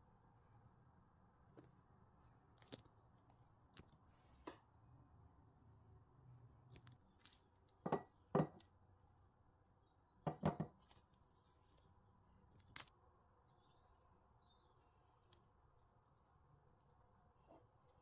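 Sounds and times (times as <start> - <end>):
glass dish knocking on countertop: 7.8 - 8.6, 10.3 - 10.7.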